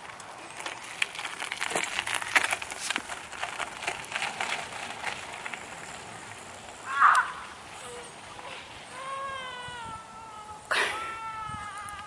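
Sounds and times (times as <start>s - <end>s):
footsteps on gravel: 0.5s - 5.9s.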